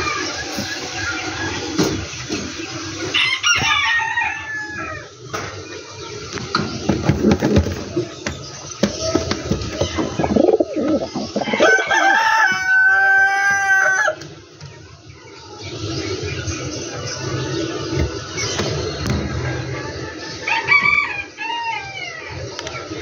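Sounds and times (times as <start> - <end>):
rooster crowing: 11.4 - 14.2.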